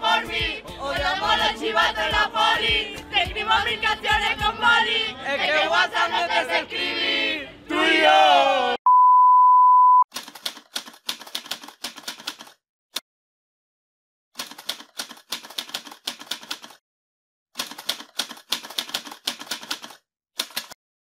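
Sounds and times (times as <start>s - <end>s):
typewriter key strikes: 17.6s - 20.8s.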